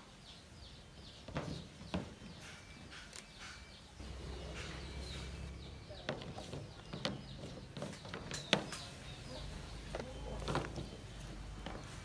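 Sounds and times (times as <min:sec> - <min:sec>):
birds chirping: 0:00.0 - 0:12.0
low steady rumble: 0:04.0 - 0:06.4.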